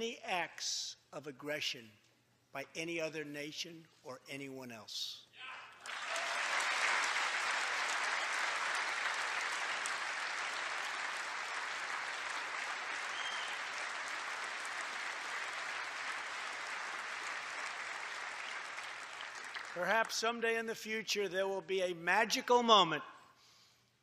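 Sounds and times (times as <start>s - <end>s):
large audience applauding: 5.8s - 20.3s.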